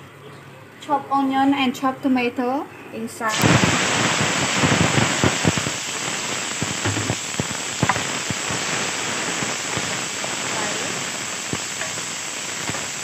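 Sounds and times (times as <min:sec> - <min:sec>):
vegetables sizzling in oil: 0:03.3 - 0:13.0.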